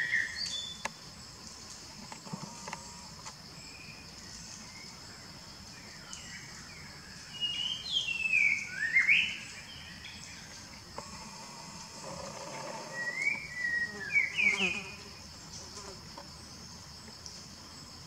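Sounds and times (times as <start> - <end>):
high insect drone: 0.0 - 18.0
bird calling: 11.0 - 14.9.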